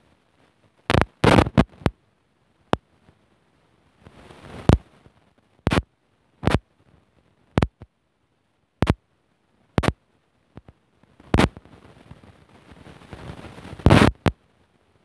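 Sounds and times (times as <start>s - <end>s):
faint clicks: 4.0s - 7.9s, 8.8s - 9.0s, 9.8s - 14.4s.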